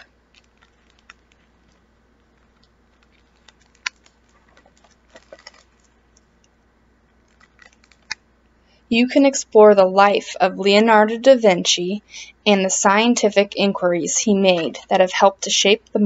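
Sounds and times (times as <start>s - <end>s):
book pages rustling: 0.0s - 8.2s.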